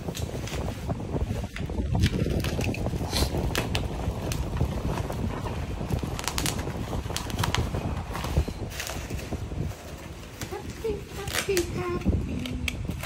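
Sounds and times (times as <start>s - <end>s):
plastic wrapping rustling and crinkling: 0.0s - 13.0s
wind rumble on microphone: 0.0s - 13.0s
scissors cutting plastic: 1.5s - 3.8s, 10.4s - 13.0s.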